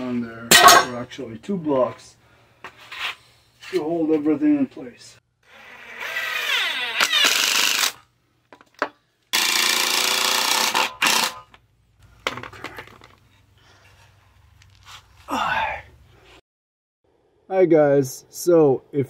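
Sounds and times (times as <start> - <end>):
cordless drill driving screws: 5.5 - 8.0, 9.4 - 11.4.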